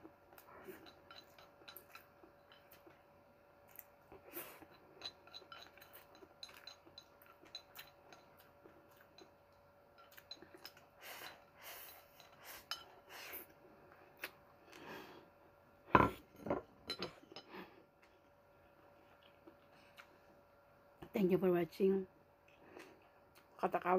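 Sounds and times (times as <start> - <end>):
noodles being chewed: 0.2 - 14.9, 18.0 - 20.4.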